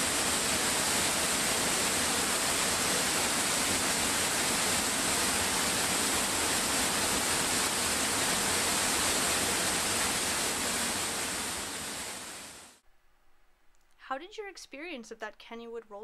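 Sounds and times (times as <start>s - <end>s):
waterfall roaring: 0.0s - 12.8s.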